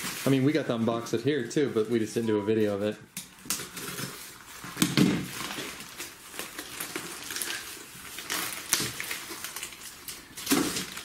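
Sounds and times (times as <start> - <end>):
plastic bag crinkling: 0.0 - 1.0, 3.6 - 11.0.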